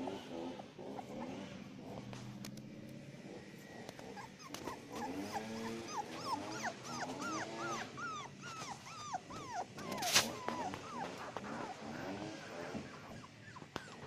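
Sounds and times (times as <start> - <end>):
puppies yipping and whimpering: 3.4 - 14.0
puppy whines: 3.7 - 14.0.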